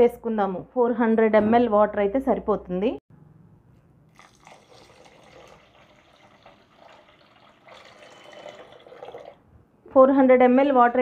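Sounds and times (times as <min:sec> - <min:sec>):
water pouring and trickling: 0:04.1 - 0:09.4.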